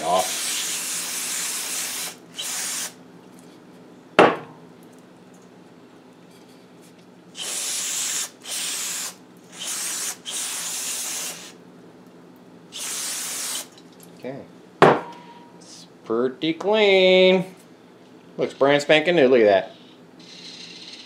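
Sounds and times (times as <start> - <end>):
aerosol spray bursts: 0.0 - 3.0, 7.4 - 11.6, 12.8 - 13.7.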